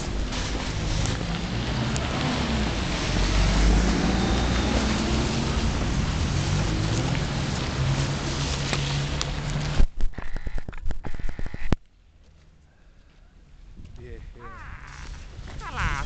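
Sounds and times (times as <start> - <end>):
vehicle passing: 0.0 - 9.8
traffic on slushy road: 0.0 - 10.5, 14.5 - 16.0.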